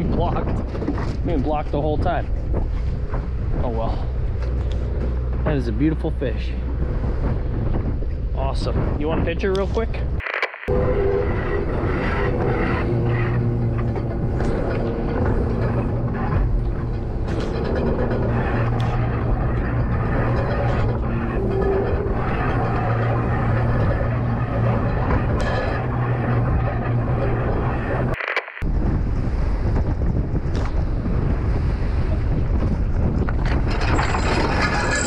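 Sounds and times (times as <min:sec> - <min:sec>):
wind: 0:00.0 - 0:35.0
boat motor droning: 0:10.7 - 0:28.2.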